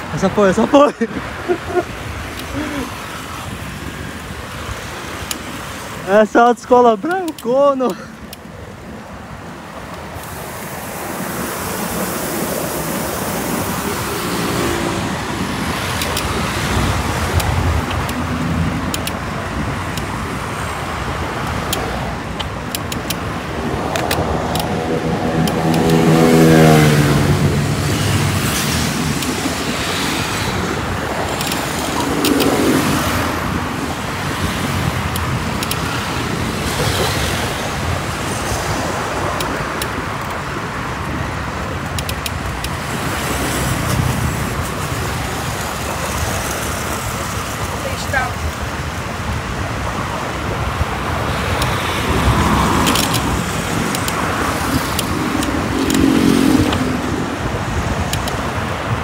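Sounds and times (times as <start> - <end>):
road traffic noise: 0.0 - 59.0
vehicle engine passing close: 23.6 - 33.9.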